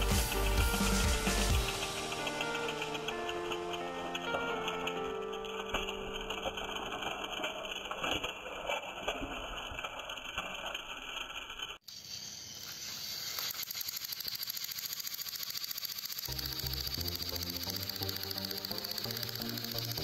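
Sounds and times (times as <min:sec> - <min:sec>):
toy train motors whirring: 0:00.0 - 0:20.0
small rattling clicks: 0:13.2 - 0:20.0
fast even ticking: 0:13.4 - 0:20.0.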